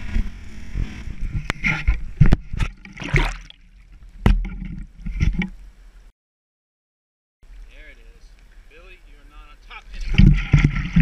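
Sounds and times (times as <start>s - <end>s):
water splashing and sloshing: 0.0s - 5.6s, 9.8s - 11.0s
camera knocks and rubbing: 4.2s - 5.6s, 10.0s - 11.0s.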